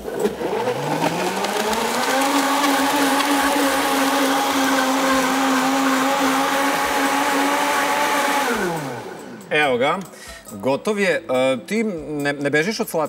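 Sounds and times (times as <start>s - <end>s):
blender motor whine: 0.0s - 9.5s.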